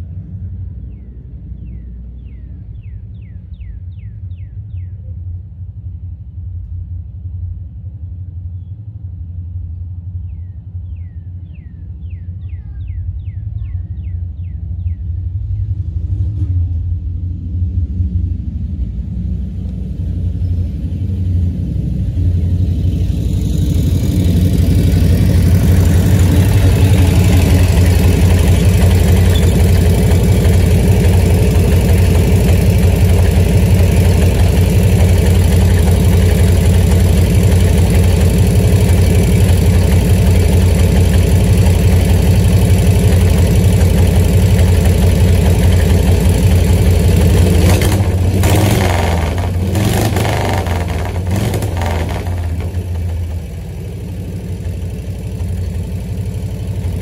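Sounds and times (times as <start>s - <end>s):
motorcycle engine running: 16.1s - 57.0s.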